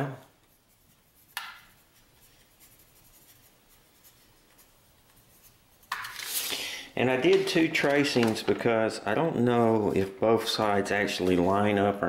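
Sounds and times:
pencil scratching on paper: 0.4 - 5.9.

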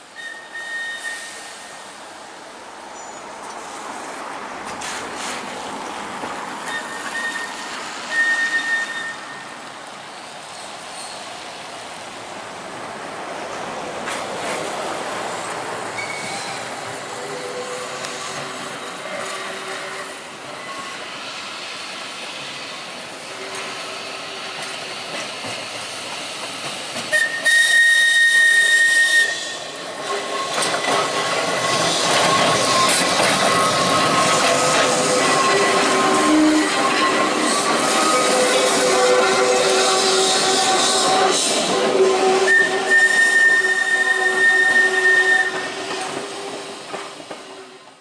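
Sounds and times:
tram wheel and motor noise: 12.0 - 48.0
high whistle blast: 38.0 - 45.8.

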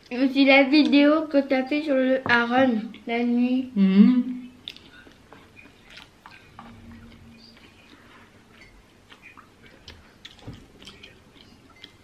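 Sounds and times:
soft chewing: 4.3 - 12.0.

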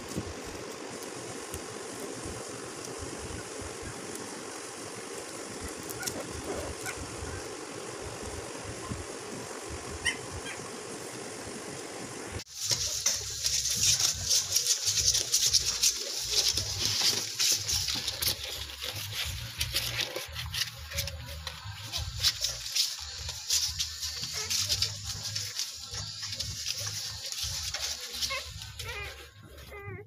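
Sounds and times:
steady background noise: 0.0 - 30.0
puppies squeaking and suckling: 12.7 - 30.0.

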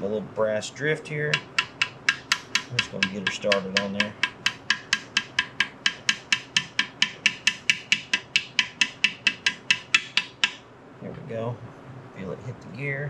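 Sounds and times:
hammer tapping metal: 1.3 - 10.6.

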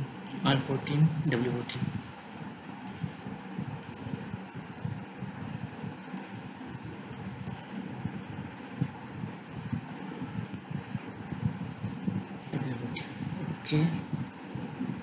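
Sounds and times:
low background hum: 0.0 - 15.0
mouse and keyboard clicks: 2.8 - 3.1, 7.4 - 7.8.

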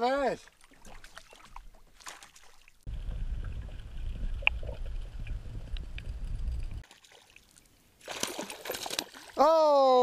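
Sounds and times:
muffled underwater rumble: 2.9 - 6.8.

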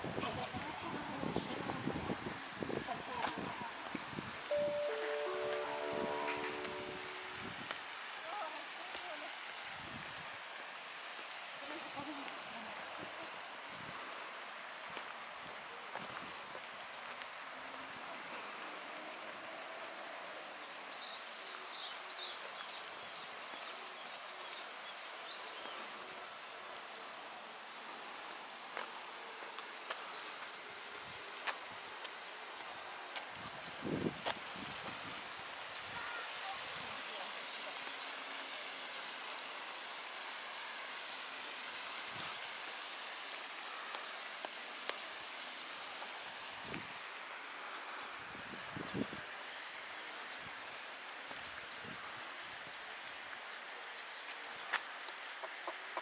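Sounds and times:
outdoor background hiss: 0.0 - 56.0
songbird singing high notes: 4.5 - 7.5.

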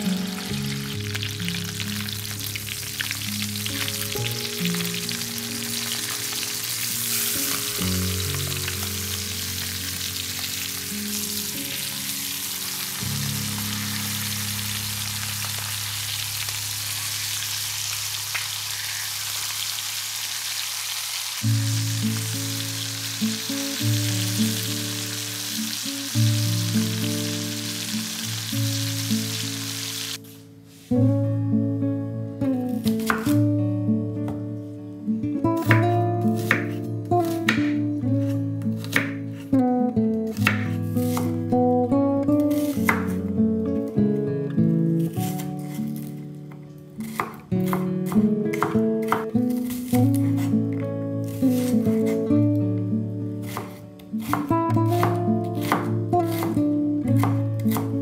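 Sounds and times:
background music: 0.0 - 17.1, 21.4 - 58.0
chicken sizzling in a pan: 0.0 - 30.4.

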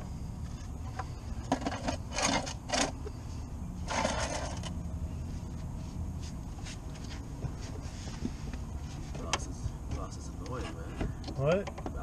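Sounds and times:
steady low rumble: 0.0 - 11.3
tools scraping and rustling: 0.5 - 3.2, 3.8 - 4.8, 10.4 - 11.2.

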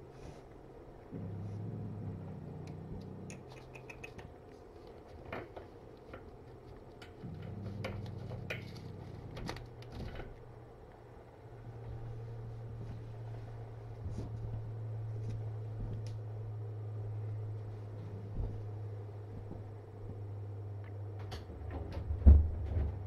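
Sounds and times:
cat purring: 0.0 - 10.7, 11.4 - 20.9
cat licking and grooming clicks: 2.6 - 7.2.

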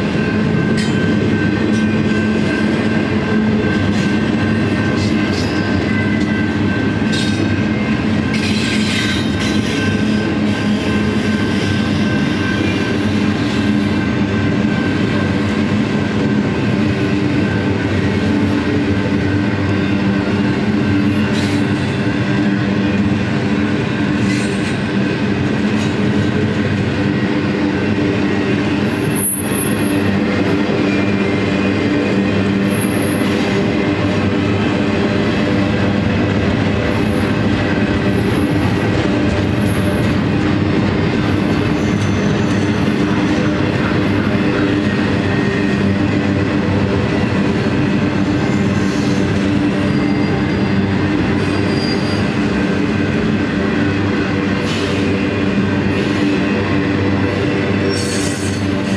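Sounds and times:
train wheels rumbling on track: 0.0 - 58.9
high squeal: 51.4 - 52.4.

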